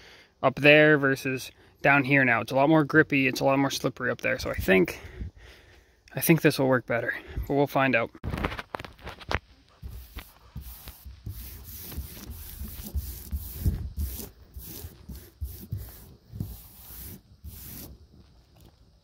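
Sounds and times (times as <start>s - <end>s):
hands rubbing transfer tape: 8.4s - 18.2s.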